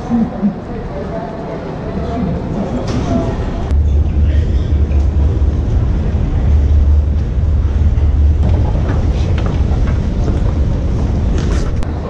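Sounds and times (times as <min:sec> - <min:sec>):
crowd hubbub: 0:00.0 - 0:12.0
low rumble: 0:03.5 - 0:12.0.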